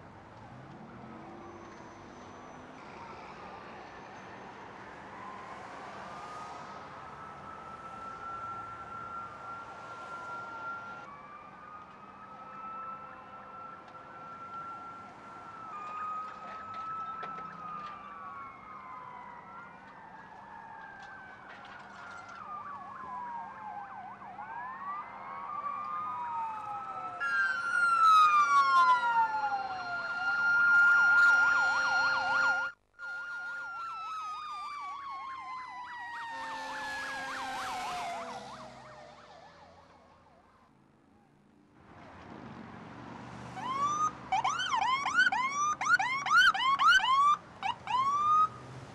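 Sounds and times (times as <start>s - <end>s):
sirens wailing: 0.0s - 41.4s, 43.4s - 48.9s
warbling siren yelp: 7.2s - 40.5s, 43.6s - 48.5s.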